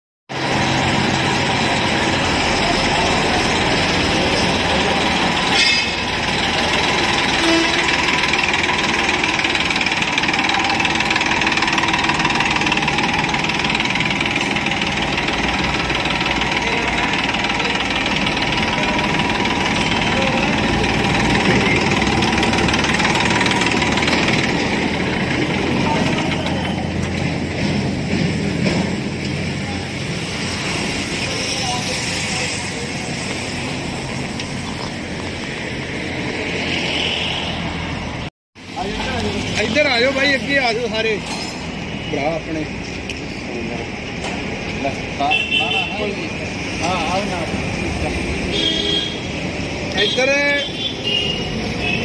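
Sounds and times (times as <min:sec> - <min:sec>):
tractor diesel engine running: 0:00.3 - 0:36.4.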